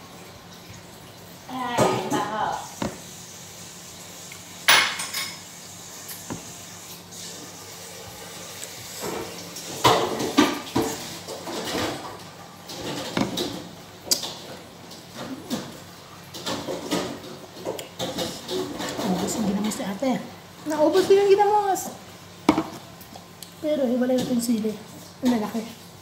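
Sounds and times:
dishes clinking: 4.7 - 5.4.

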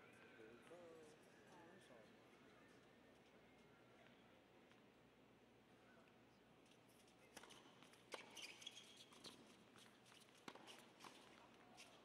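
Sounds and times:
shoe squeaks: 8.4 - 9.1.

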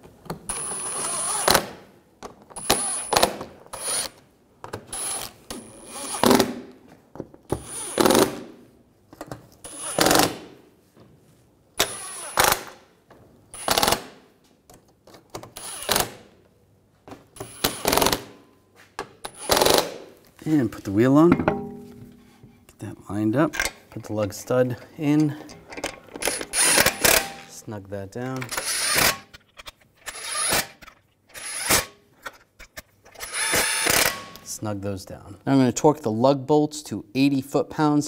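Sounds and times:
impact driver bursts: 11.8 - 12.8, 13.6 - 14.2, 17.4 - 18.4, 26.2 - 27.5, 28.5 - 29.3, 33.2 - 34.4.

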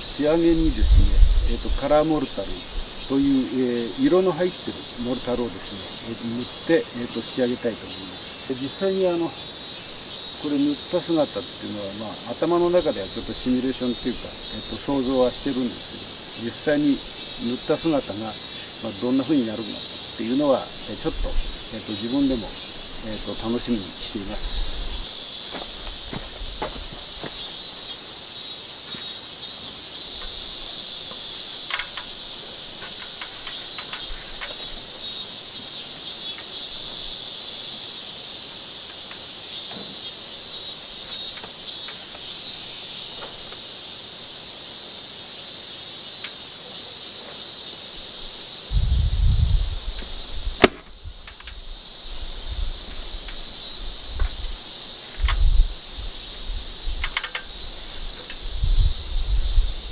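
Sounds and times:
insects chirring: 0.0 - 59.9
staple gun snapping: 50.6 - 51.5.

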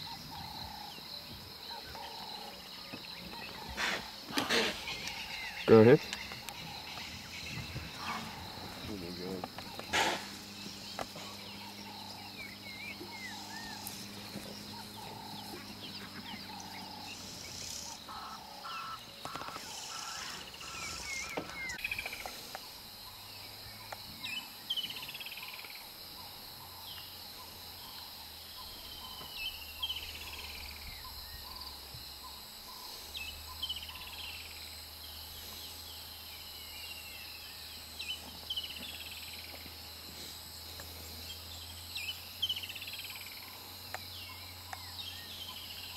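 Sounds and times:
high insect drone: 0.0 - 45.9.

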